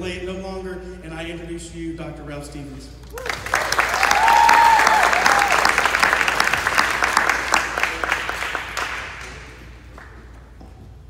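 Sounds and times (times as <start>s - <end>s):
audience applauding: 3.1s - 10.3s.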